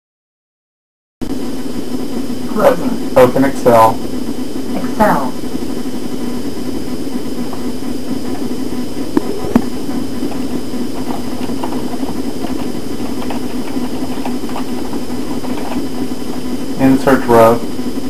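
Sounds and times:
faint high whine: 0:01.2 - 0:18.0
low mechanical hum: 0:01.2 - 0:18.0.

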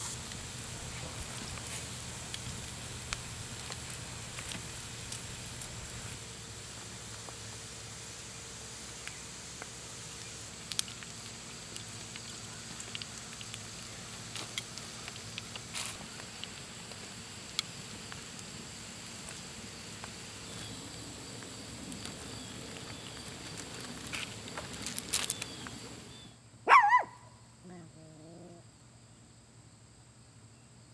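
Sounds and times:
pops and crackles: 0:00.0 - 0:06.2, 0:09.0 - 0:26.1
meat sizzling on a griddle: 0:00.0 - 0:26.2.

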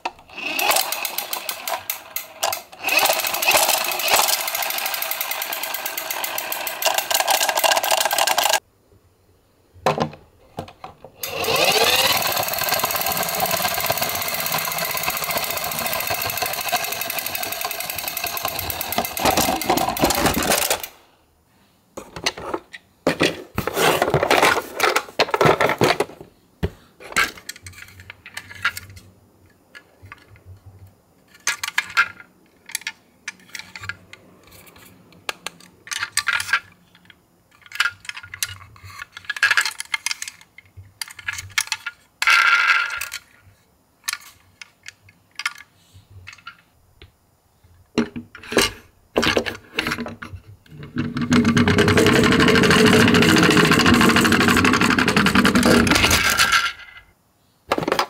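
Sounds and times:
toy ambulances clicking and clinking: 0:00.2 - 0:08.6, 0:11.2 - 0:21.0, 0:31.3 - 0:43.4, 0:50.9 - 0:56.7.

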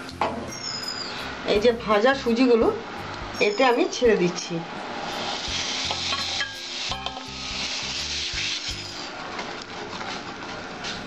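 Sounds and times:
semolina sizzling in syrup: 0:00.5 - 0:11.0
wooden spatula stirring: 0:08.1 - 0:11.0.

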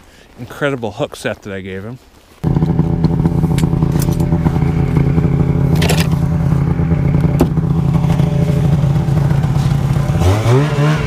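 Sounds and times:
sled knocking and scraping: 0:02.4 - 0:11.0
snowmobile engine running: 0:02.4 - 0:11.0.

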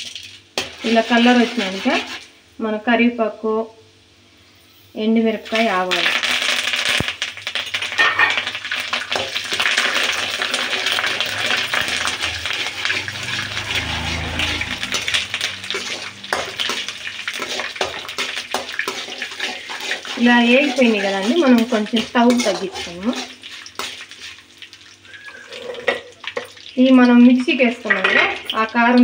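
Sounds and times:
spices sizzling in hot oil: 0:00.0 - 0:02.4, 0:04.6 - 0:29.0
metal spoon scraping a pan: 0:00.6 - 0:02.3, 0:09.1 - 0:26.5, 0:27.6 - 0:29.0.

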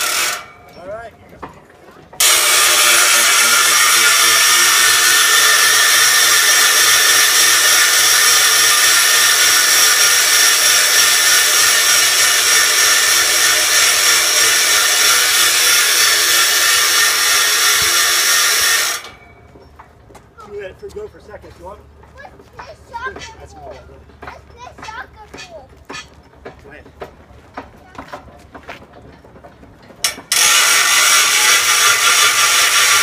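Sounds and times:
power tool whirring: 0:00.0 - 0:00.6, 0:02.2 - 0:19.4, 0:30.0 - 0:33.0.

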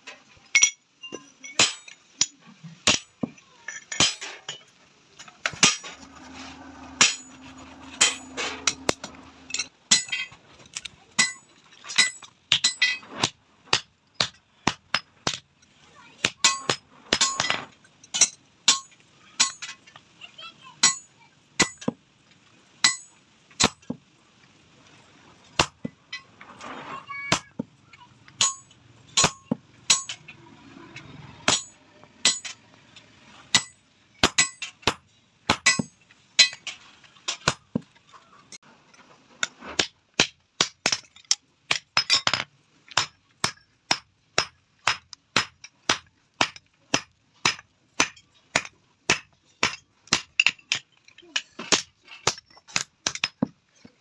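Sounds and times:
hammer striking chisel on anvil: 0:06.9 - 0:10.3, 0:22.8 - 0:23.8, 0:28.4 - 0:30.2, 0:31.5 - 0:32.6, 0:33.5 - 0:36.6, 0:41.7 - 0:50.8.

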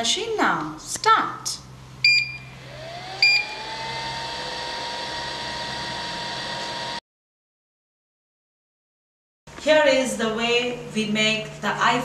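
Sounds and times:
machine beeps: 0:02.0 - 0:02.6, 0:03.2 - 0:03.6
vacuum pump motor whine: 0:02.0 - 0:07.0.

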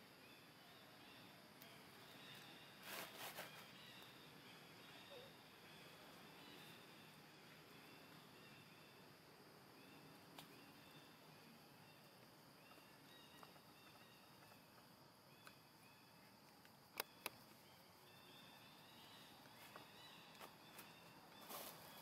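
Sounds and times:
sharp clicks: 0:16.4 - 0:17.6.

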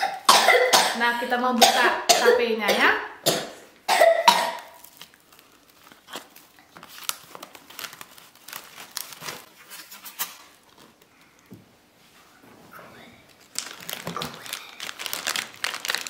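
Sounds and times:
plastic ribbon crinkling: 0:04.7 - 0:11.4, 0:13.2 - 0:16.0.

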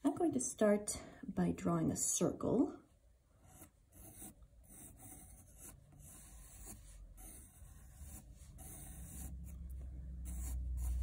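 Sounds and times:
pencil scratching on paper: 0:03.4 - 0:11.0.

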